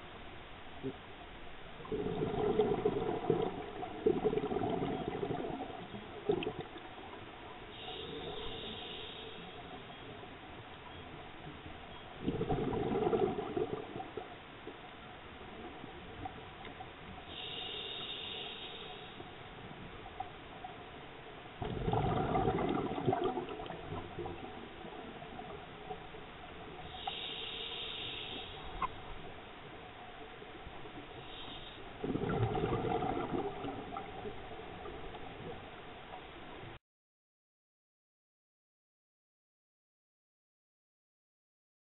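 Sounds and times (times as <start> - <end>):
exhaled bubbles rumbling underwater: 0.7 - 9.0, 9.6 - 18.4, 19.4 - 36.8
underwater exhalation bubbling: 1.8 - 6.8, 12.2 - 14.2, 21.6 - 24.6, 32.0 - 34.3
regulator inhalation hiss: 7.7 - 9.8, 17.2 - 19.3, 26.8 - 28.9, 31.2 - 32.0.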